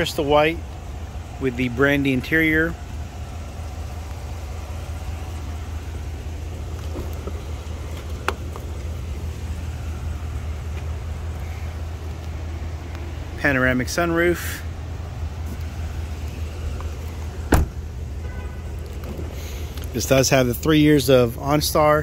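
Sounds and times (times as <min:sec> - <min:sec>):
steady low rumble: 0:00.0 - 0:22.0
car door opening click: 0:17.5 - 0:17.8.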